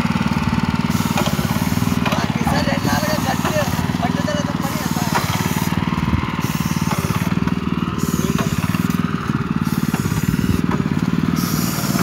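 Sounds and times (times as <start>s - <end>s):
small engine running: 0.0s - 12.0s
high spray hiss: 8.0s - 9.0s, 9.6s - 10.6s, 11.4s - 12.0s.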